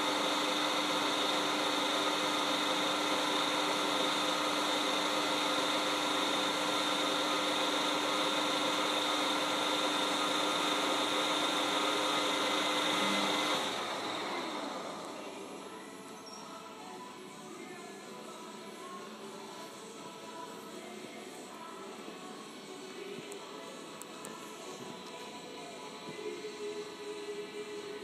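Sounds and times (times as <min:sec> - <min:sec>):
lathe whining and humming: 0:00.0 - 0:16.8.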